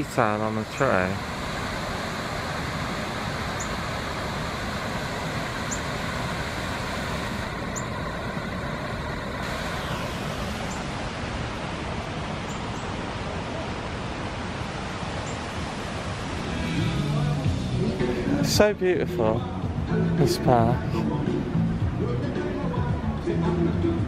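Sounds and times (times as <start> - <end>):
steady rushing outdoor noise: 0.0 - 24.0.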